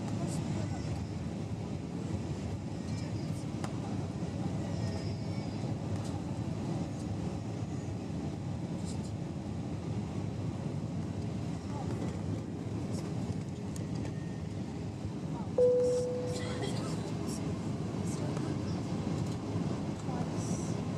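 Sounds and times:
jet engine hum: 5.6s - 20.9s.

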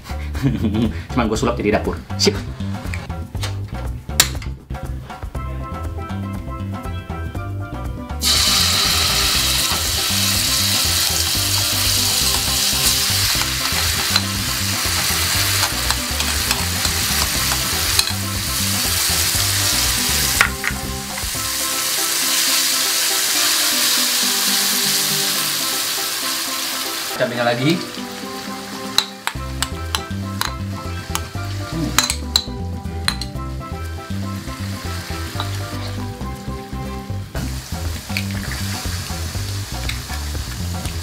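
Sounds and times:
paste sizzling in oil: 8.2s - 41.0s.

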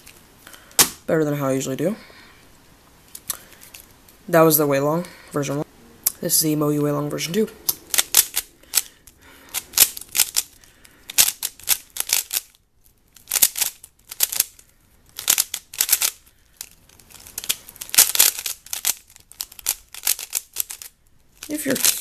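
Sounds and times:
puzzle cube clicking: 7.6s - 12.5s, 13.2s - 22.0s.

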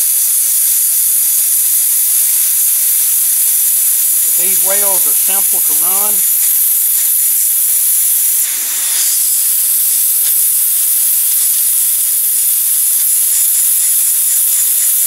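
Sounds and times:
hot-air welding gun hissing: 0.0s - 15.0s.

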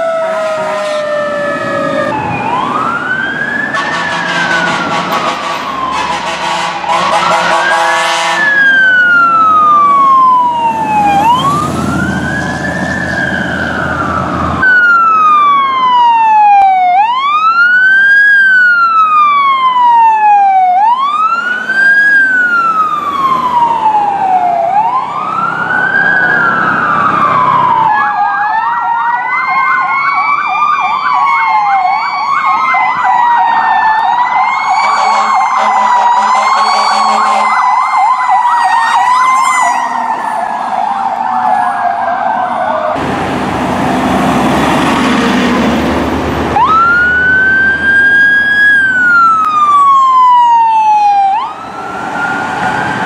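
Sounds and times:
wailing siren: 0.0s - 53.0s
yelping sirens: 0.0s - 53.0s
loud rushing noise: 43.0s - 47.8s.

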